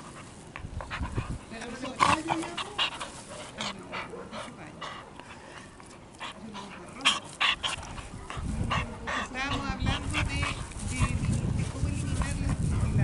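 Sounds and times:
dog panting yipping and whining: 6.0 - 11.2.

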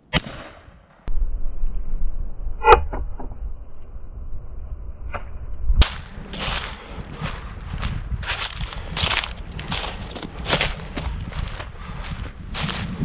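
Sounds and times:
shotgun blast echo: 0.0 - 1.0
low rumble on microphone: 1.1 - 13.0.

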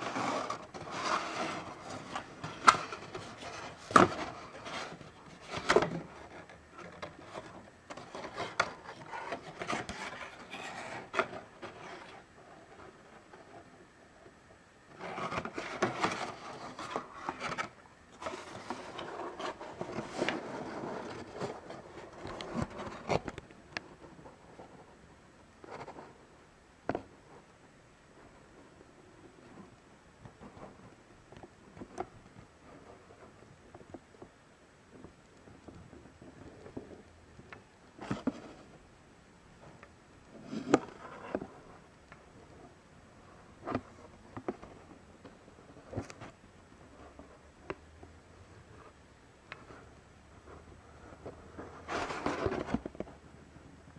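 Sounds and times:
cardboard packaging rubbing and scraping: 0.0 - 13.3, 14.9 - 23.3, 51.5 - 52.8.

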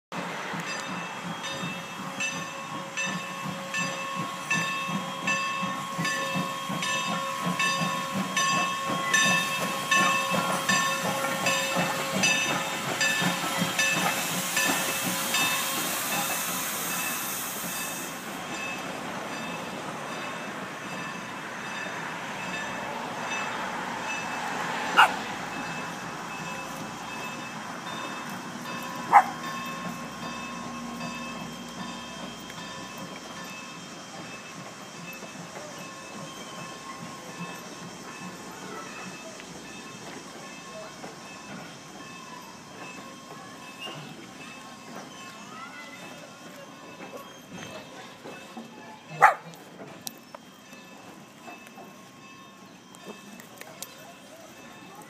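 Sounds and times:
steam hiss: 0.2 - 48.8
crossing bell clanging: 0.5 - 55.0.

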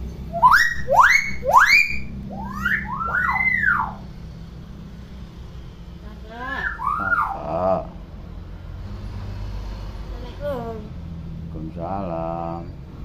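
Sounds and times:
myna bird whistling: 0.2 - 4.1, 6.4 - 7.6.

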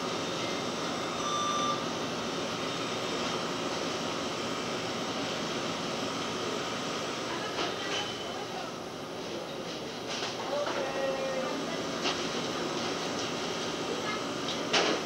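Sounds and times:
kitchen equipment and ventilation: 0.0 - 15.0
short electronic beep: 1.0 - 1.8.

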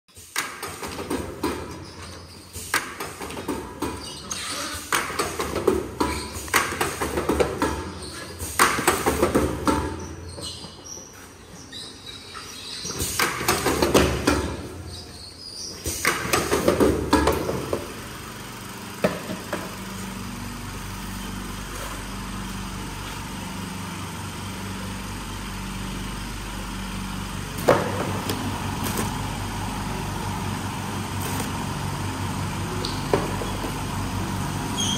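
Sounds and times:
box sealing machine running: 16.6 - 34.9.

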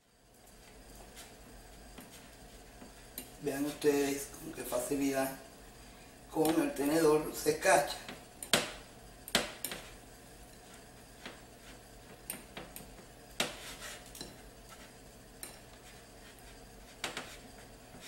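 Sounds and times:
fork scraping bowl: 13.4 - 18.0.

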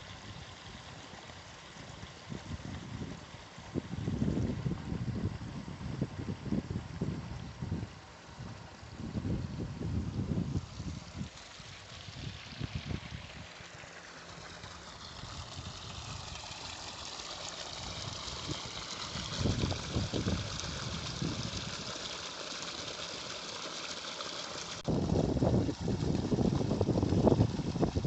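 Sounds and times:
water splashing into a tank: 10.3 - 28.0.

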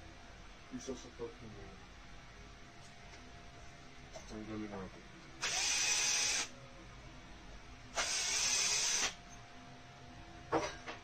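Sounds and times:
cordless electric screwdriver running: 5.4 - 6.5, 8.0 - 9.2.

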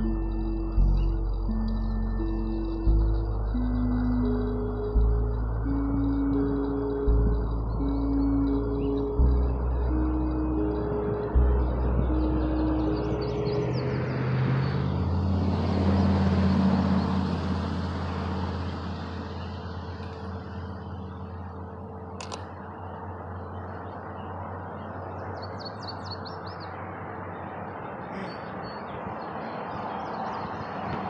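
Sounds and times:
bird chirping: 0.0 - 15.3, 18.4 - 26.8
vehicle passing: 0.0 - 31.0
sharp click: 22.2 - 22.6.

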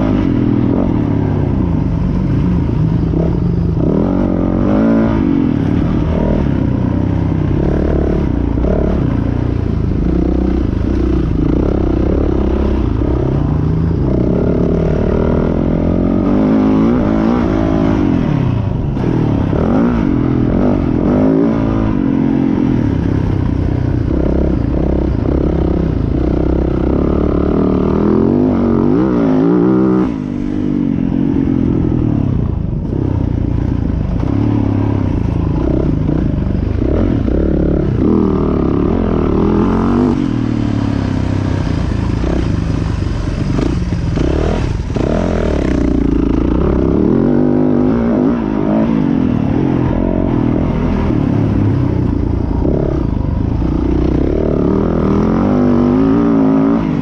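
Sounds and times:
motocross engine revving: 34.2 - 51.7.

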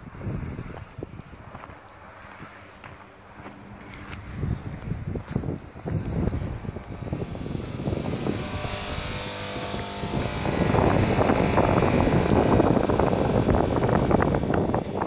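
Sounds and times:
faint multi-tone hum: 0.0 - 15.0
wind buffeting microphone: 0.0 - 15.0.

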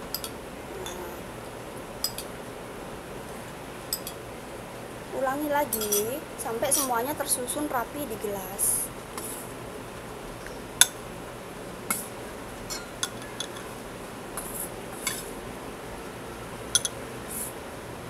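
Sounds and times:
spoon and glasses clinking: 5.7 - 6.1, 6.8 - 7.0, 16.8 - 17.0.

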